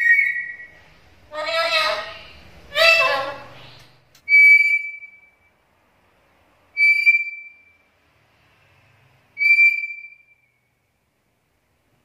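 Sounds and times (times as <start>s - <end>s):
parrot whistling: 0.0s - 5.4s, 6.8s - 7.8s, 9.4s - 10.6s.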